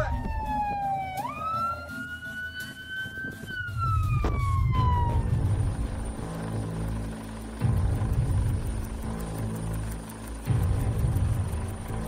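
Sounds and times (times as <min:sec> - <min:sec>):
siren wailing: 0:00.0 - 0:06.4
low rumble: 0:03.8 - 0:12.0.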